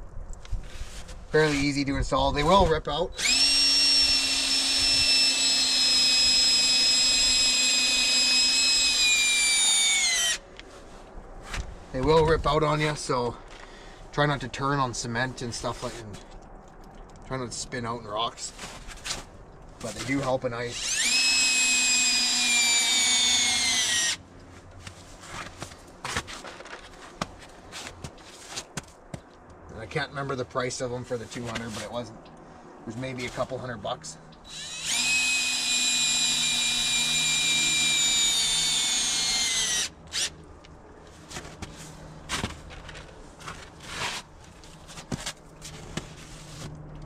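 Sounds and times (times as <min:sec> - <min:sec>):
cordless drill motor whine: 0:03.2 - 0:10.4, 0:20.7 - 0:24.2, 0:34.5 - 0:40.4.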